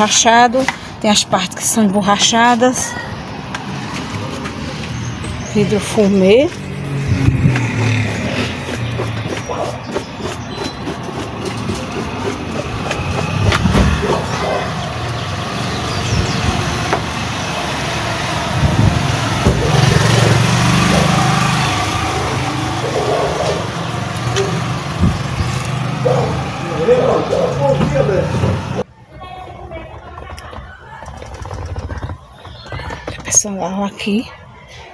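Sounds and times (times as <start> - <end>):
engine running: 3.6 - 28.8.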